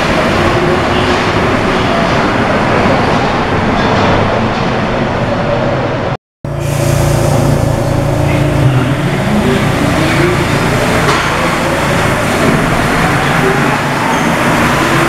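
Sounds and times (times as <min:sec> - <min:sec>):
train rumble: 0:00.0 - 0:15.0
metro train motor whine: 0:06.5 - 0:15.0.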